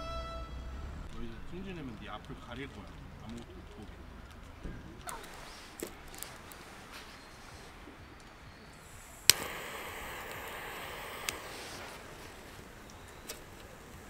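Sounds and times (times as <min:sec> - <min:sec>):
flame hissing: 0:04.2 - 0:14.0
torch lighter clicking: 0:08.8 - 0:14.0.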